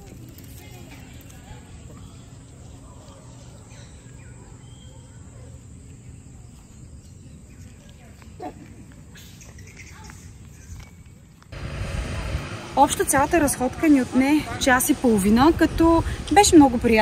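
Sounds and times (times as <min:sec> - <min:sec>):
insect calls: 0:01.7 - 0:11.4.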